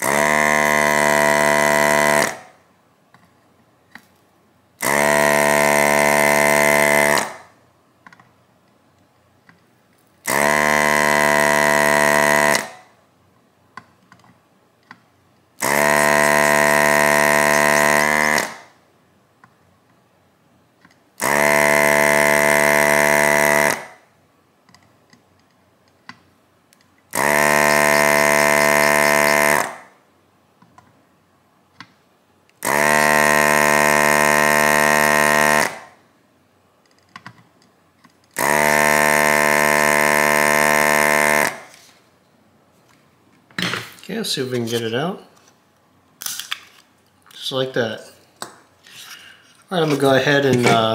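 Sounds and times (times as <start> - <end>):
desoldering pump buzzing: 0.0 - 2.4, 4.8 - 7.4, 10.2 - 12.8, 15.6 - 18.7, 21.2 - 24.0, 27.1 - 29.9, 32.6 - 35.9, 38.4 - 41.7.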